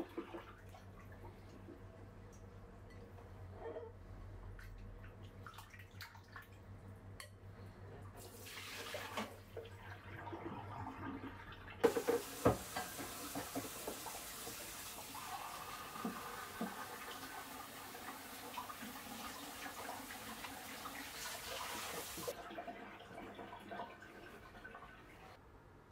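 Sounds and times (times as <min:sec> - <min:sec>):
faucet running: 0:11.8 - 0:25.4.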